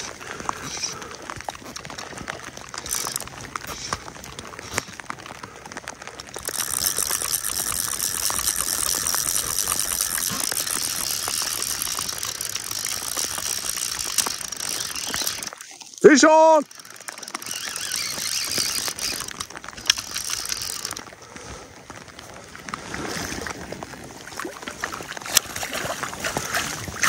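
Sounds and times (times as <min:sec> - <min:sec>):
fishing reel drag ratcheting: 0:00.0 - 0:04.9, 0:06.4 - 0:21.1.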